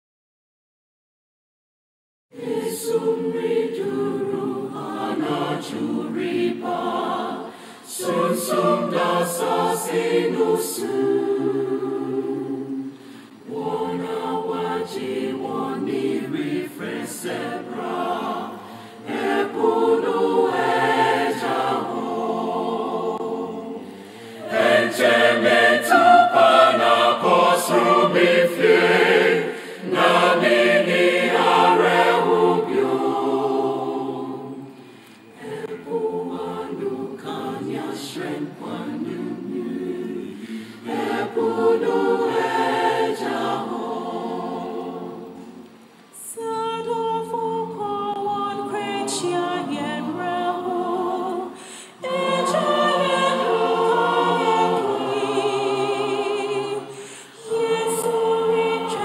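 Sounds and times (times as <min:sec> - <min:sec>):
choir singing a hymn: 0:02.3 - 0:59.0.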